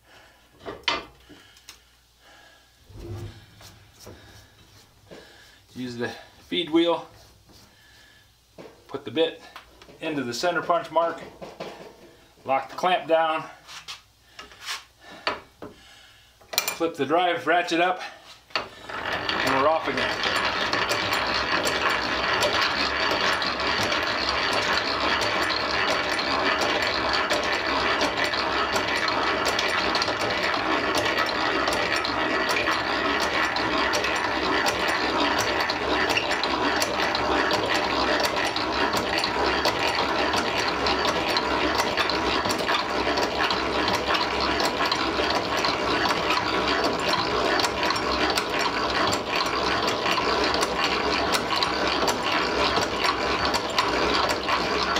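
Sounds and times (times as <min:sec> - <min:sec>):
hand-cranked drill press: 0:00.6 - 0:01.7, 0:02.9 - 0:08.0, 0:13.8 - 0:15.8, 0:16.5 - 0:54.9
gears and ratchet clicking rapidly: 0:18.6 - 0:54.9.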